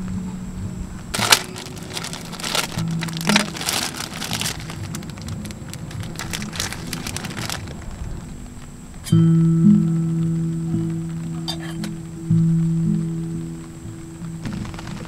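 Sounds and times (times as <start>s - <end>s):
soft background music: 0.0s - 15.0s
plastic packaging crinkling: 1.1s - 8.4s, 14.4s - 15.0s.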